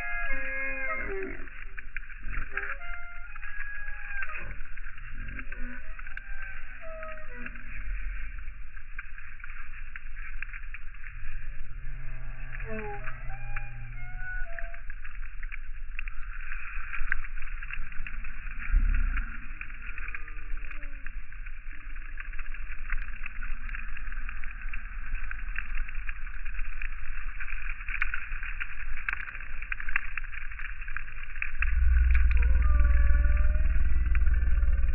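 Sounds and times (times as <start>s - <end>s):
slowed gull cries: 0.0s - 1.6s, 2.3s - 7.8s, 11.8s - 15.0s, 31.6s - 34.9s
rushing crackling noise: 0.0s - 34.9s.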